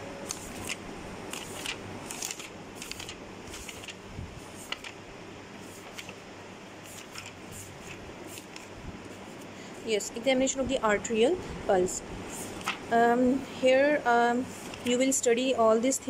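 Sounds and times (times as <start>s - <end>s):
steady low hum: 0.0s - 16.0s
notebook pages turning: 0.3s - 4.0s, 4.6s - 5.0s, 5.6s - 6.2s, 6.8s - 8.7s, 12.4s - 12.8s.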